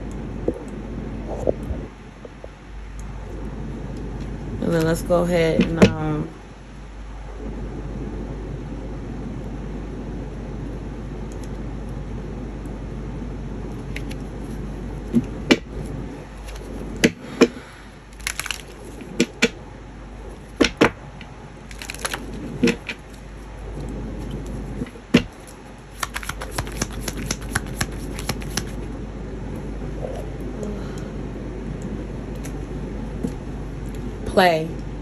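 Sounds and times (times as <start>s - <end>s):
cards being shuffled: 13.9s - 17.2s, 18.2s - 19.1s, 21.7s - 23.0s, 24.2s - 28.9s
cards tapping and snapping: 14.0s - 14.2s, 18.2s - 19.5s, 21.7s - 23.0s, 25.2s - 28.9s.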